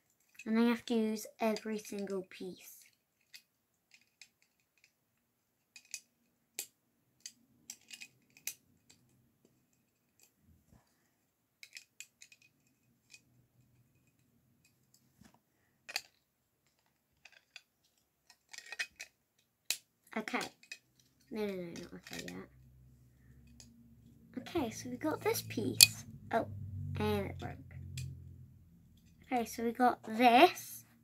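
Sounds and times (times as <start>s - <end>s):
plastic bricks clicking: 2.8s - 5.0s, 5.6s - 9.1s, 11.6s - 13.3s, 15.9s - 22.4s.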